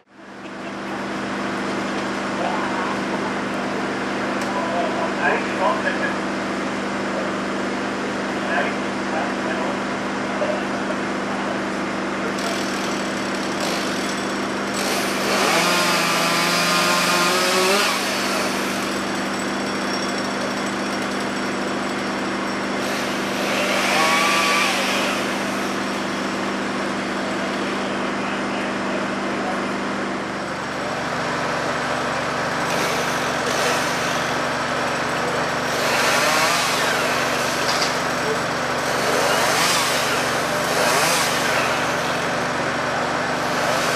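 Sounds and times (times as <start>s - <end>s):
truck engine drone: 0.0s - 43.9s
chainsaw cutting branches: 12.4s - 27.6s, 31.9s - 43.9s.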